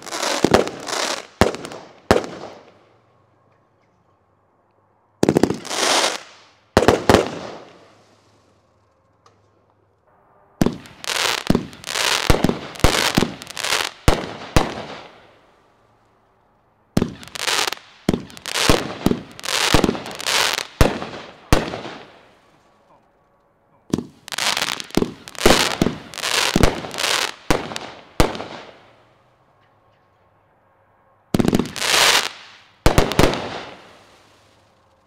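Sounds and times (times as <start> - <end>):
firework shots banging: 10.6 - 15.2, 17.0 - 22.2, 23.9 - 28.8.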